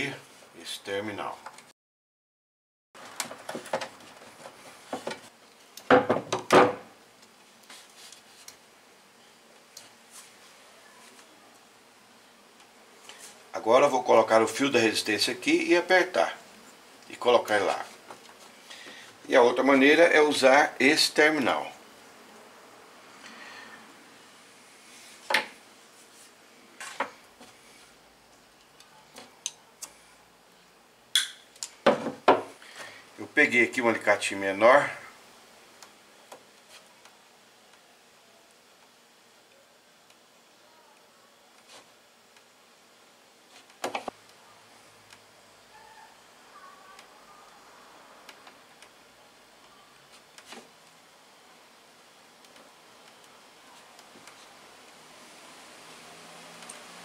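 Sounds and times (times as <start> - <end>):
knocks on wooden tabletop: 5.9 - 6.9, 31.8 - 32.5.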